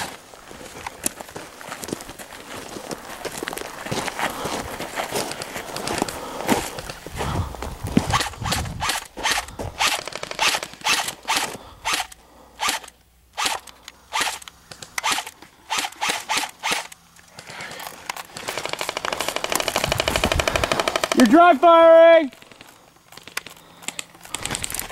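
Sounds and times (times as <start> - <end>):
footsteps crunching on gravel: 0.0 - 12.2
airsoft rifle full-auto rattle: 8.1 - 21.4, 22.3 - 24.9.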